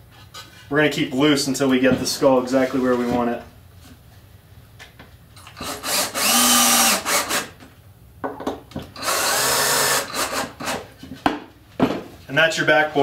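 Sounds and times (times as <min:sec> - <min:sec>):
cordless drill motor whine: 0:05.6 - 0:07.5, 0:09.0 - 0:10.5.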